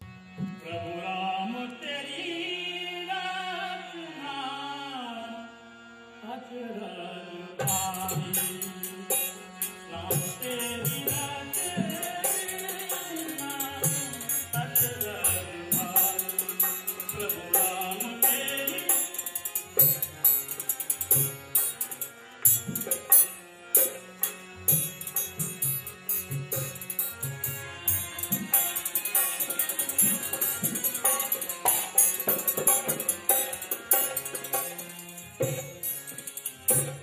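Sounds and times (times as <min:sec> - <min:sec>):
harmonium: 0:00.0 - 0:37.0
man singing: 0:00.6 - 0:05.6, 0:06.2 - 0:20.2
hand drum rhythm: 0:27.9 - 0:37.0.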